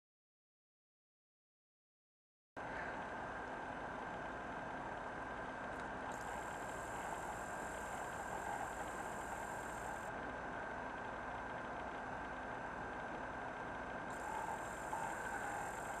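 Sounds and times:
background hum and hiss: 2.6s - 16.0s
faint constant whistle: 6.1s - 10.1s, 14.1s - 16.0s
faint high whine: 6.1s - 10.1s, 14.1s - 16.0s.

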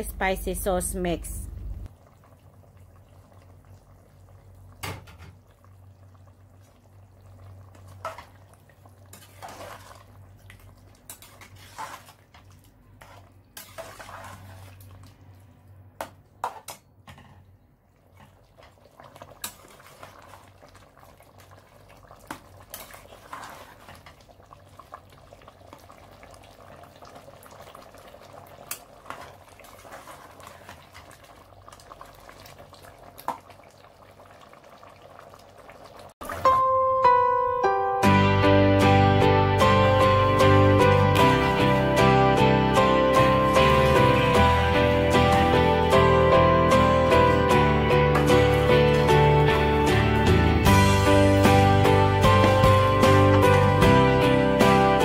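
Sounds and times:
faint bubbling simmer: 1.4s - 16.0s, 17.2s - 36.4s.

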